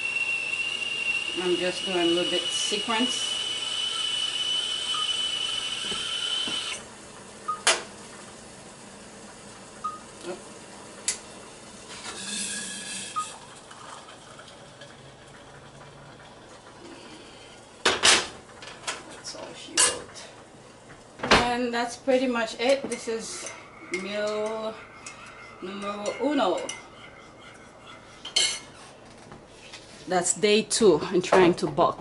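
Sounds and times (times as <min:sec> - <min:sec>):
kettle whistling: 0:00.0 - 0:07.7, 0:09.7 - 0:17.4, 0:22.9 - 0:28.6.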